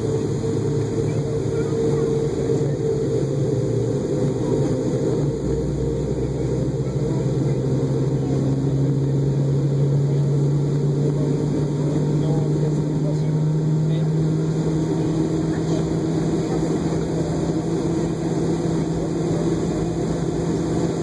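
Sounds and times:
jet engines humming in cabin: 0:00.0 - 0:21.0.

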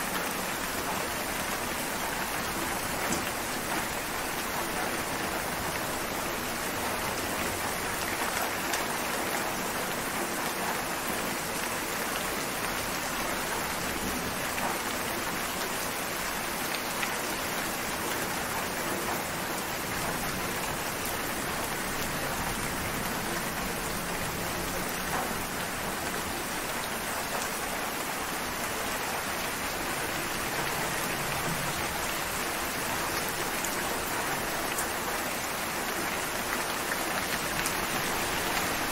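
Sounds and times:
steady rain falling: 0:00.0 - 0:38.9.

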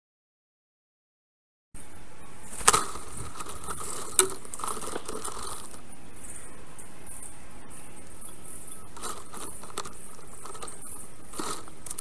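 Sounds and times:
steady microphone hiss: 0:01.8 - 0:12.0
light crackling: 0:02.4 - 0:12.0.

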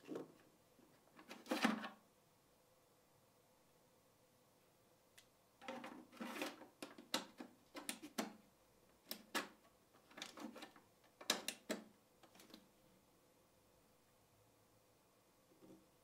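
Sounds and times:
plastic clicks and taps: 0:09.0 - 0:12.6.

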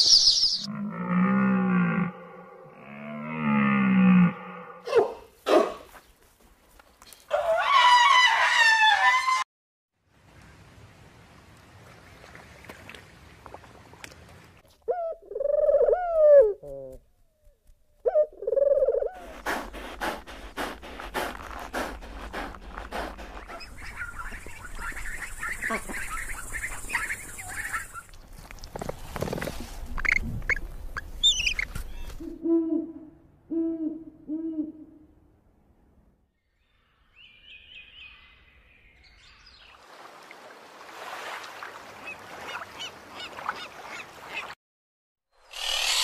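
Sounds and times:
dove cooing: 0:14.9 - 0:17.0, 0:18.1 - 0:20.1
owl hooting: 0:18.0 - 0:28.0.

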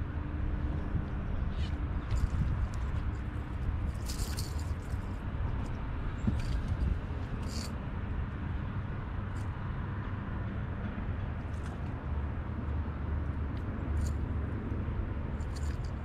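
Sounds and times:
fishing lure rattling: 0:03.9 - 0:05.2, 0:06.4 - 0:07.7, 0:15.4 - 0:16.0.

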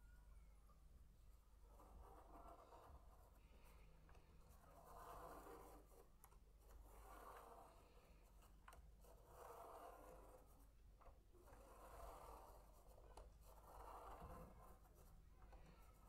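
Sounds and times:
pen scratching on paper: 0:01.7 - 0:10.8, 0:11.4 - 0:16.0.

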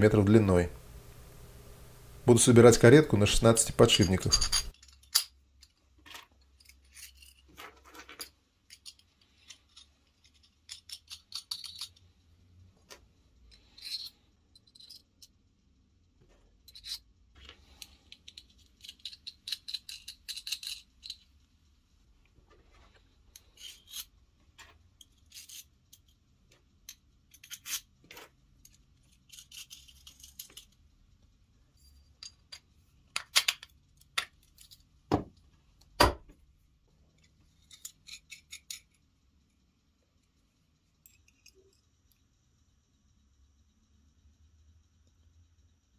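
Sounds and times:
small steel parts clicking: 0:03.8 - 0:12.2, 0:12.9 - 0:15.4, 0:16.6 - 0:21.5, 0:23.3 - 0:30.9, 0:31.8 - 0:35.0, 0:37.1 - 0:39.1, 0:40.9 - 0:42.3.

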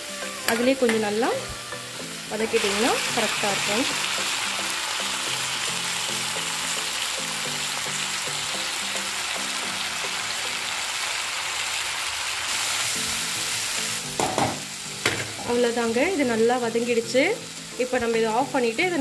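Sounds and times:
vegetables sizzling in hot oil: 0:00.0 - 0:19.0.

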